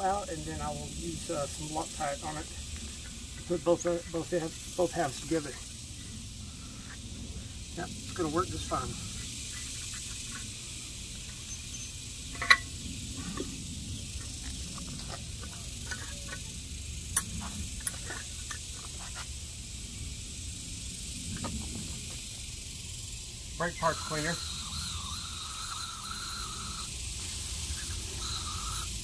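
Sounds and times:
steady background hiss: 0.0s - 29.0s
metal parts clicking and tapping: 12.3s - 12.7s.

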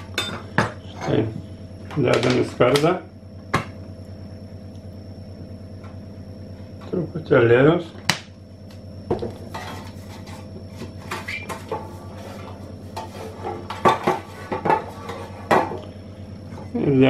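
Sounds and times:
metal tin scraping on countertop: 9.5s - 15.5s.

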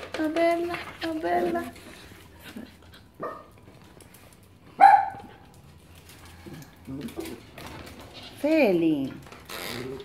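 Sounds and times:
puppy barking: 4.8s - 5.4s.

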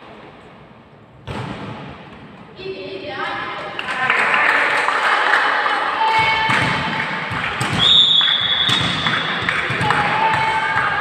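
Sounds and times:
volleyball hits: 1.2s - 2.1s, 6.1s - 11.0s.

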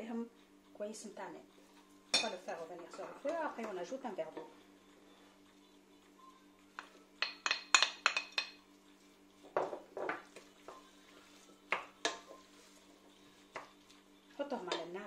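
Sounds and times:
utensils clinking on steel bowl: 2.1s - 3.7s, 7.2s - 8.6s.

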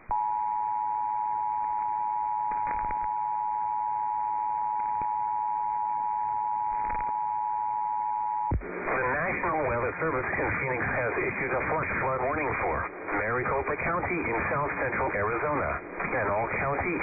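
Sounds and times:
faint static crackles: 0.0s - 17.0s
radio hiss: 8.6s - 17.0s.

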